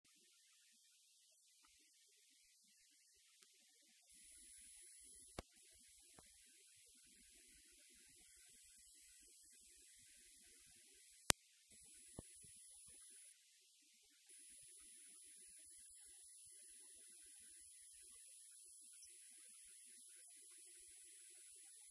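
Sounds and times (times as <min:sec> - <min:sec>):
thin high whine: 0:04.1 - 0:13.4, 0:14.3 - 0:21.9.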